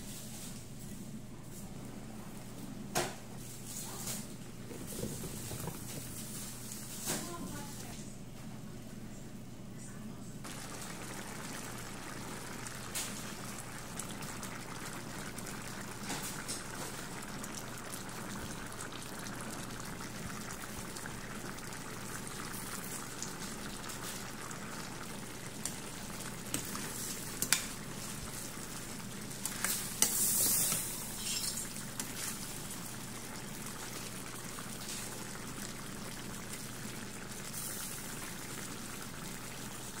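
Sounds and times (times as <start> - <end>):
stew bubbling and sizzling: 2.3 - 7.9, 10.4 - 40.0
stirring noise: 10.4 - 40.0.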